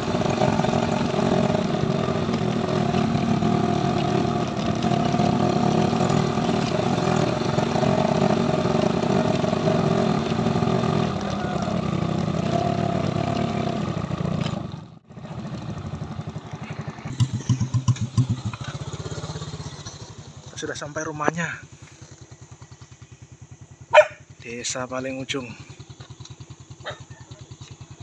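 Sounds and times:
motorcycle passing: 0.0s - 28.0s
small motorcycle engine running: 0.0s - 28.0s.

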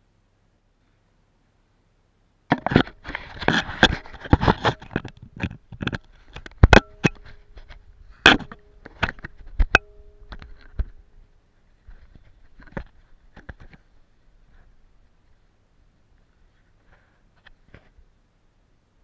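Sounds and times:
camera handling knocks and scrapes: 2.5s - 11.0s, 11.9s - 13.9s.

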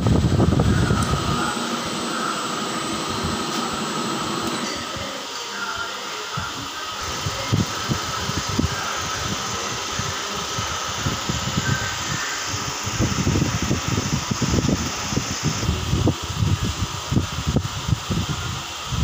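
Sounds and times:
milling machine motor whir: 0.0s - 5.4s.

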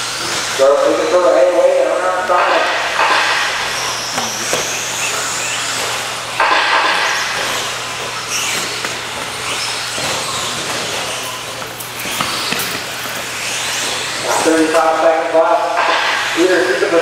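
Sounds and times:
rc truck motor whine: 0.0s - 1.2s, 3.6s - 15.0s.

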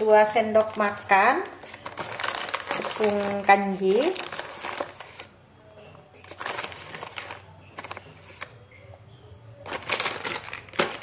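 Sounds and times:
plastic packaging crinkling: 0.0s - 5.3s, 6.2s - 8.5s, 9.6s - 11.0s.

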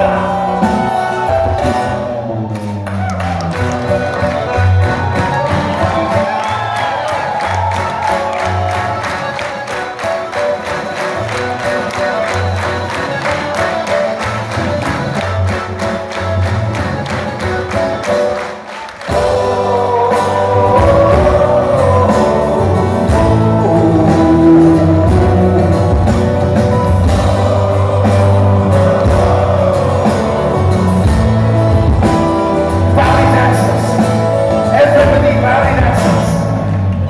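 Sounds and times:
man singing lead: 0.0s - 2.2s, 19.1s - 26.6s, 27.2s - 31.4s, 32.7s - 36.7s
live rock band playing: 0.0s - 37.0s.

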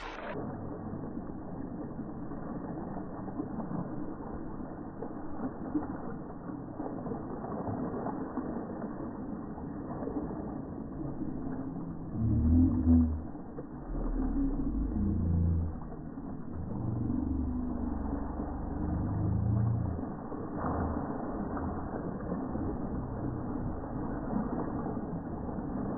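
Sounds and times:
water splashing on rock: 0.0s - 25.9s
low rumbles: 9.6s - 25.9s.

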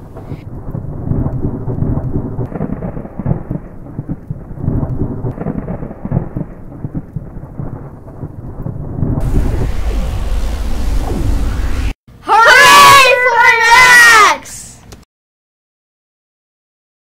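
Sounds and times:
rain: 0.0s - 12.0s
rumbling thunder: 0.0s - 12.0s.

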